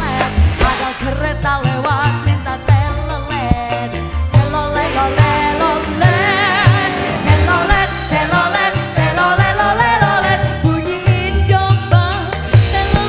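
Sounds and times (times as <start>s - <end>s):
cymbals: 0.0s - 2.5s, 3.3s - 10.8s
keyboard: 0.0s - 13.0s
woman singing with vibrato: 0.0s - 13.0s.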